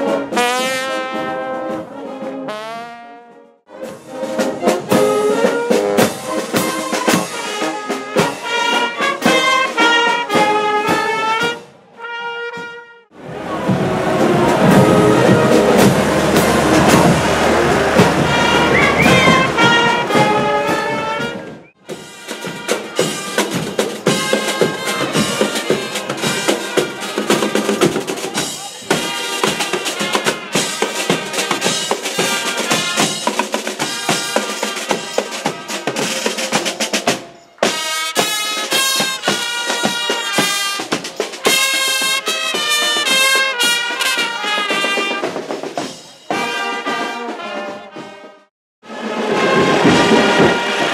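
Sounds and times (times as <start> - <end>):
trumpets and baritone horns: 0.0 - 50.9
snare and bass drums beating: 13.6 - 48.3, 49.3 - 50.9.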